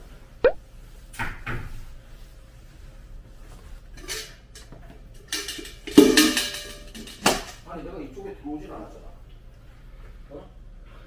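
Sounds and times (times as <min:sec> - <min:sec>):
metal ice bucket clanking: 0:05.2 - 0:07.6.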